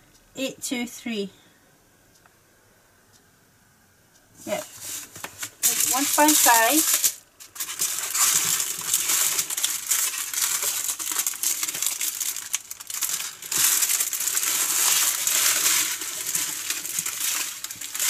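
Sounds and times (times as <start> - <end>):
plastic bags crinkling: 4.5 - 18.0.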